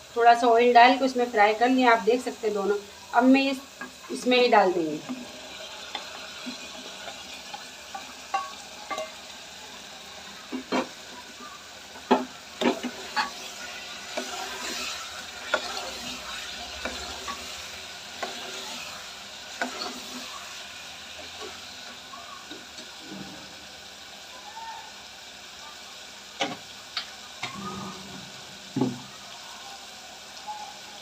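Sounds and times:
food sizzling: 0.0s - 31.0s
steel spoon clinking on a pot: 7.1s - 9.2s.

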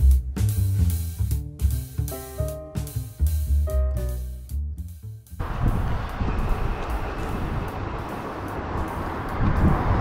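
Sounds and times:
music with drums and guitar: 0.0s - 5.2s.

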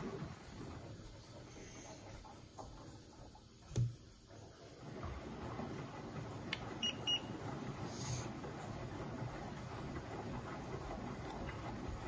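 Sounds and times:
washing machine drum turning: 2.0s - 12.0s
thermometer beeps: 6.8s - 7.3s.

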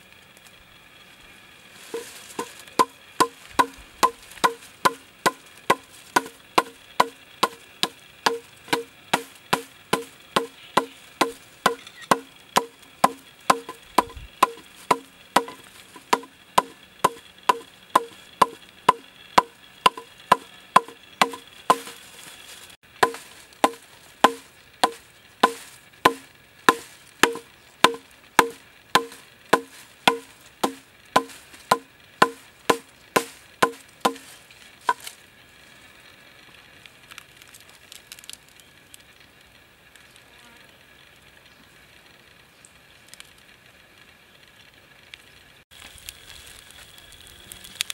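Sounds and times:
hammer knocking on bamboo: 2.0s - 22.0s, 23.0s - 34.2s.

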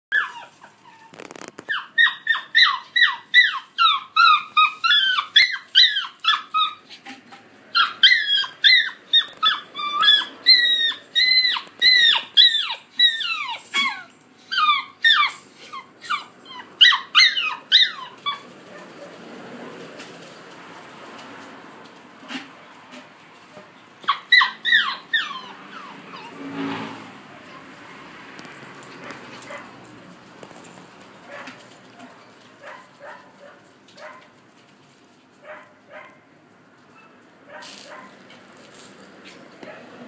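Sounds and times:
puppy yapping: 0.1s - 7.0s, 7.7s - 19.0s, 24.0s - 26.4s, 29.0s - 29.8s, 31.2s - 34.3s, 36.9s - 38.2s.

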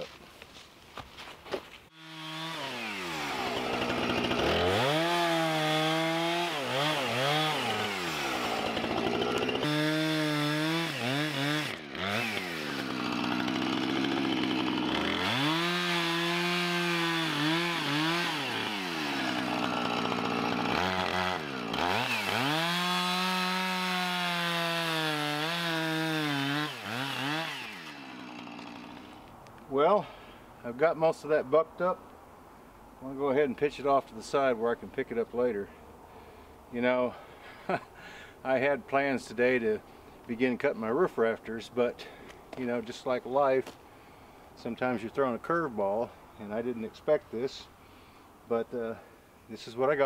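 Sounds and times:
chainsaw revving and idling: 1.9s - 29.3s, 37.6s - 37.8s.

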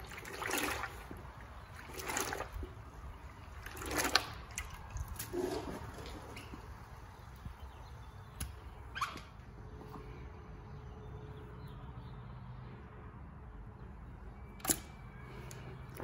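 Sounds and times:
short falling squeak: 8.9s - 9.4s.

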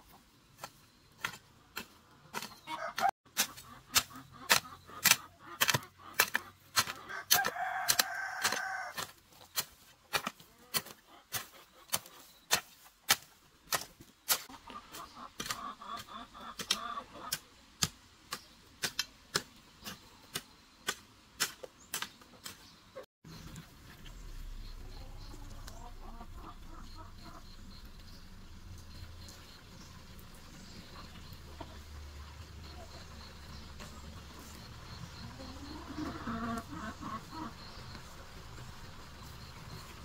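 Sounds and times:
hens clucking: 0.0s - 9.1s, 10.1s - 12.4s, 14.4s - 17.4s, 23.3s - 40.0s
hoe chopping into soil: 3.3s - 14.5s.

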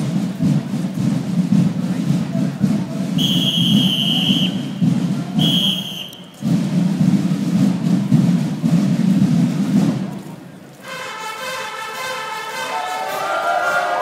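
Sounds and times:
marching band playing: 0.0s - 14.0s
shrill whistle blasts: 3.2s - 4.8s, 5.4s - 6.3s.

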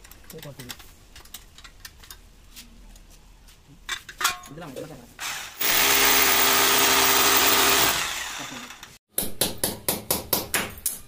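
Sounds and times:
electric drill running: 5.2s - 8.9s.

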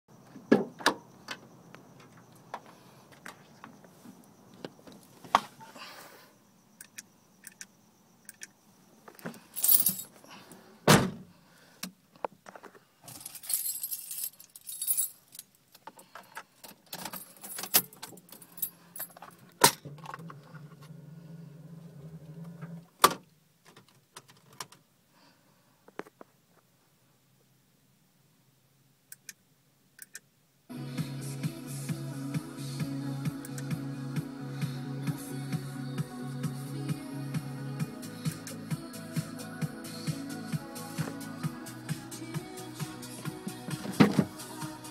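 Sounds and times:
keys jangling: 9.4s - 10.2s, 13.1s - 15.6s, 16.9s - 19.4s.

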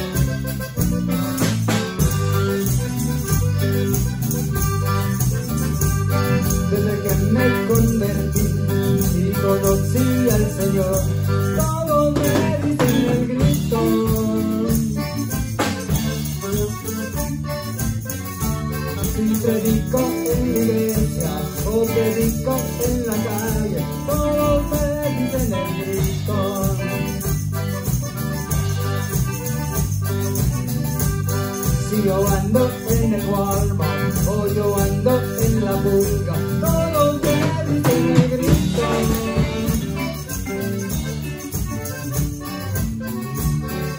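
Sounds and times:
accordion melody: 0.0s - 43.9s
live band music: 0.0s - 43.9s.

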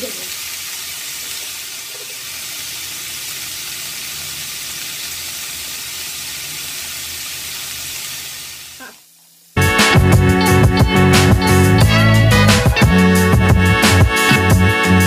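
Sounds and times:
chicken sizzling in a frying pan: 0.0s - 9.6s.

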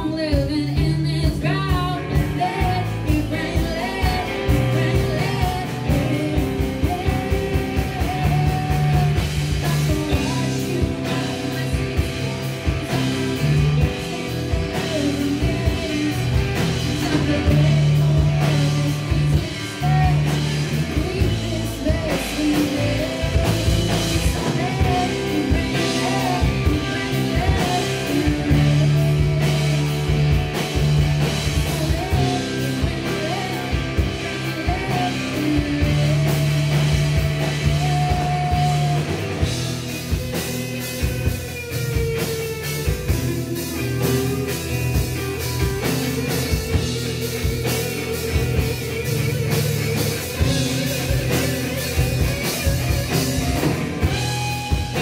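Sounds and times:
drum kit: 0.0s - 55.0s
electric guitars: 0.0s - 55.0s
woman singing lead vocal: 0.0s - 55.0s.

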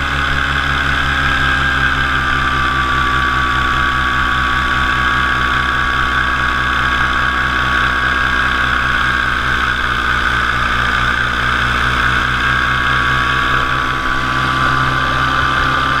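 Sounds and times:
paramotor engine and propeller drone: 0.0s - 16.0s.

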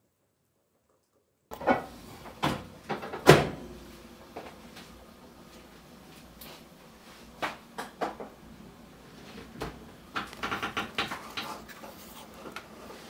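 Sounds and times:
knocks and clicks of kitchen items: 1.5s - 3.7s, 7.4s - 8.4s, 9.4s - 12.7s.

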